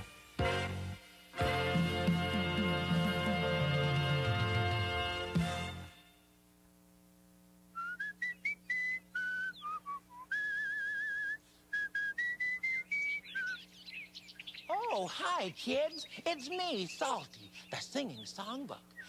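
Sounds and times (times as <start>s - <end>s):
theme music: 0.0s - 6.1s
person whistling a cheerful tune: 7.8s - 13.6s.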